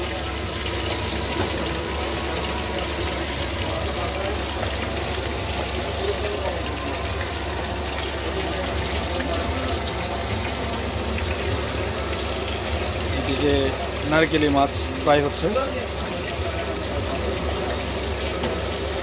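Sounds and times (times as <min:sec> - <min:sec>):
food sizzling in hot oil: 0:00.0 - 0:19.0.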